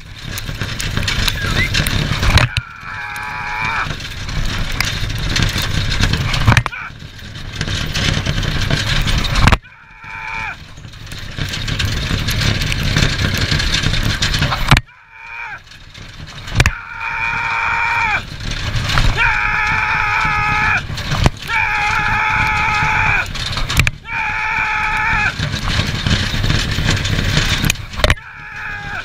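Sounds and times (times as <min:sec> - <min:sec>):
wind and track noise: 0:00.0 - 0:29.0
person yelling: 0:02.5 - 0:03.9, 0:09.7 - 0:10.6, 0:19.1 - 0:20.8, 0:21.5 - 0:23.2.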